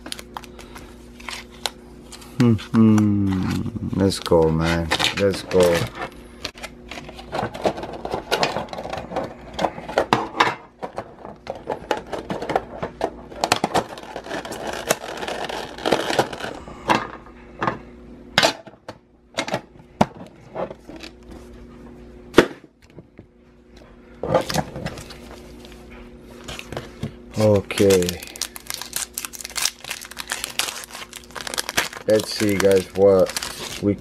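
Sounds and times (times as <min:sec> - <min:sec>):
packaging rustling: 0:03.3 - 0:09.3, 0:13.4 - 0:16.6, 0:26.4 - 0:34.0.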